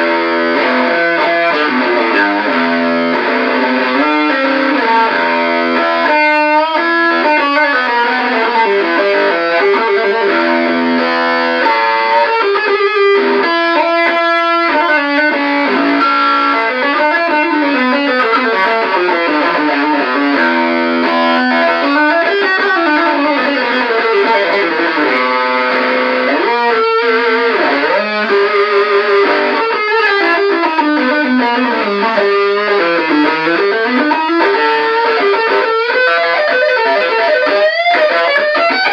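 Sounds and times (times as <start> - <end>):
fuzzed electric guitar lead: 0.0 - 38.9.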